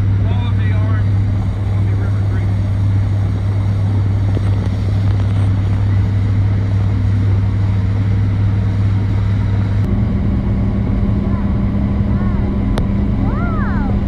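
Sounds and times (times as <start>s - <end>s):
motorboat engine humming: 0.0s - 14.0s
wind noise: 2.5s - 8.0s.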